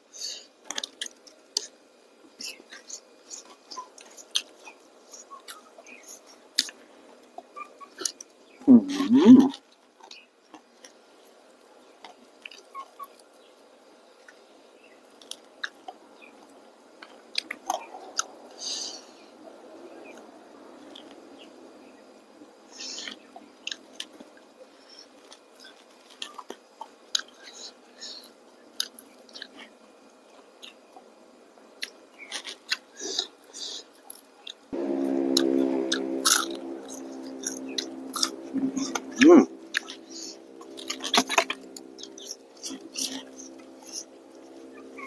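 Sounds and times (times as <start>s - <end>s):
person chewing crispy fish: 37.3s - 44.1s.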